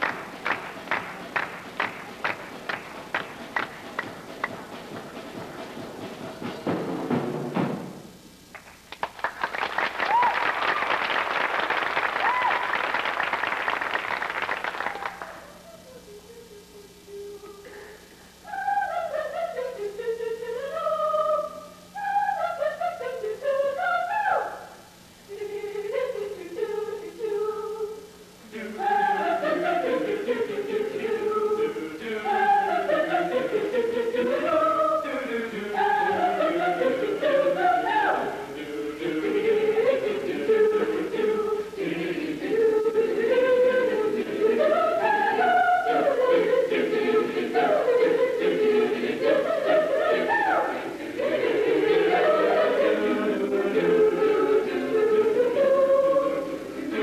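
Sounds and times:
choir singing: 18.4s - 57.0s.

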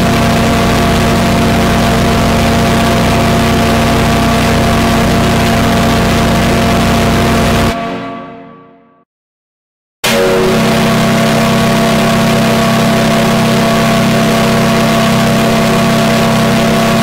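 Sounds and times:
ship's whistle blast: 10.0s - 14.7s.

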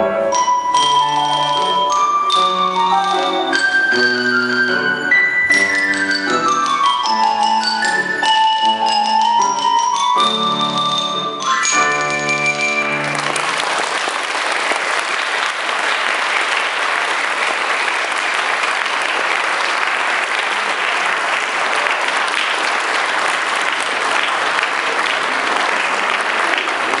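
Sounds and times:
audience applauding: 11.4s - 27.0s.

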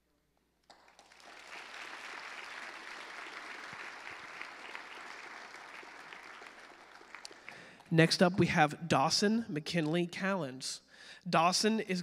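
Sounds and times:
crowd applauding: 0.6s - 8.0s.

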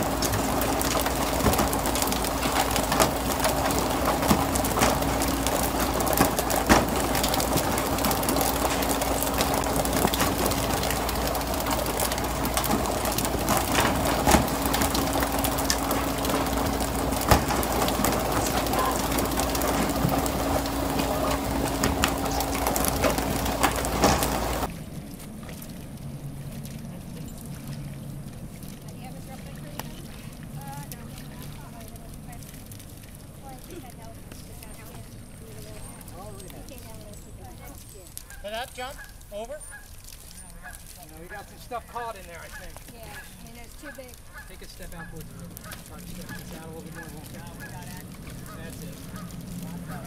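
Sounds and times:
fish knocking on deck: 0.0s - 24.7s
rushing water and spray: 0.0s - 36.4s, 37.6s - 50.0s
low machinery hum: 0.0s - 38.2s, 40.2s - 50.0s.

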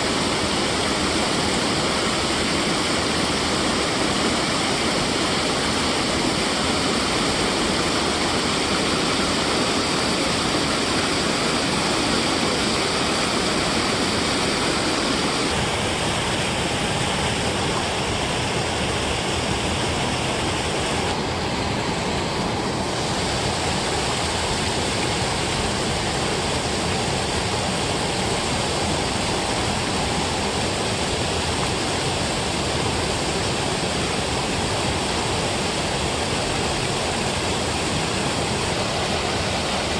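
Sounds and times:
water rushing over a weir: 0.0s - 39.9s.

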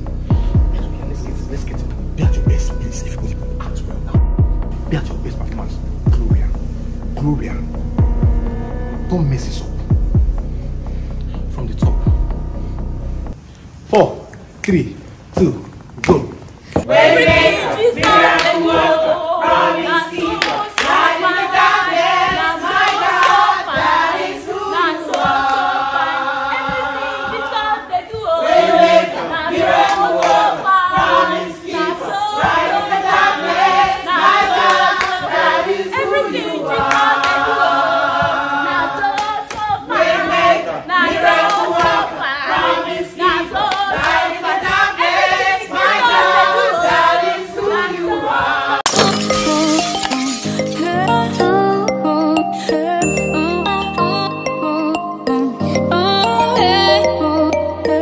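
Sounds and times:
choir singing upbeat song: 0.0s - 10.5s, 16.7s - 58.0s
hand-clapping: 18.0s - 18.6s, 20.3s - 21.0s, 22.8s - 23.5s, 34.5s - 35.3s, 36.8s - 37.4s, 39.1s - 39.7s.

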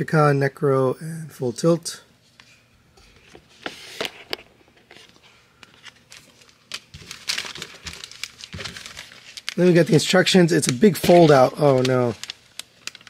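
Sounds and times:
paper rustling: 3.1s - 13.0s.

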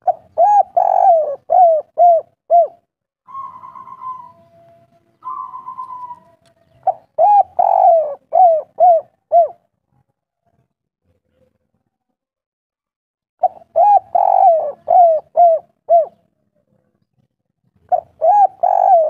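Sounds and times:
dove cooing: 0.0s - 9.6s, 13.4s - 16.2s, 17.9s - 19.0s.

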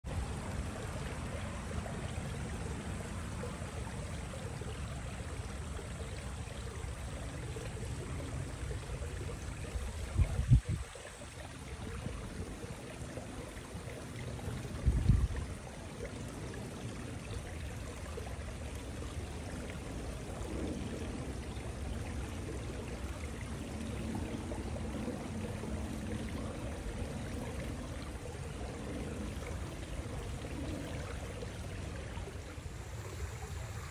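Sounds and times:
wind buffeting microphone: 9.7s - 11.0s, 14.5s - 15.6s.

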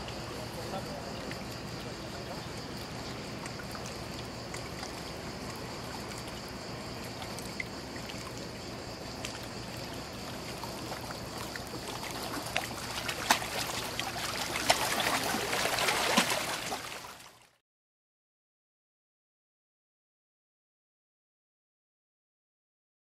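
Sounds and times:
river water lapping against bank: 0.0s - 17.5s
small splashes and clicks: 0.0s - 17.6s.

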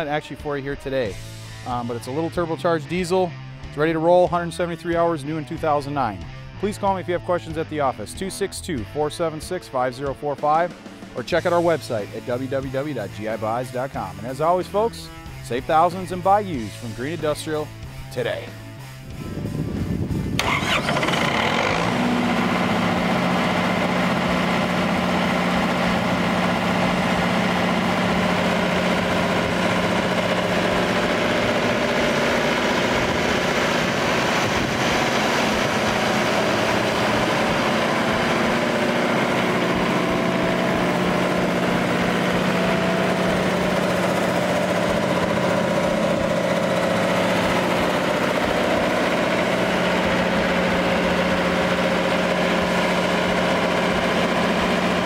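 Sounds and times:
diesel generator humming: 0.0s - 55.0s.

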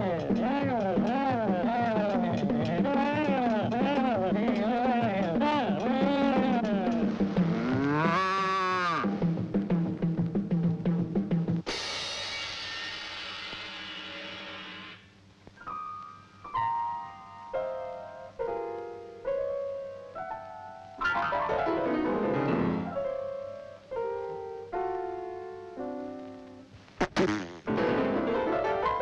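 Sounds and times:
piano notes: 15.6s - 26.7s, 27.7s - 29.0s.

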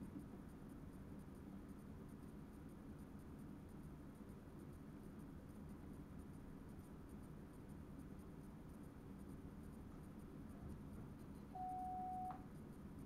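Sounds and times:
electronic beep: 11.5s - 12.4s.

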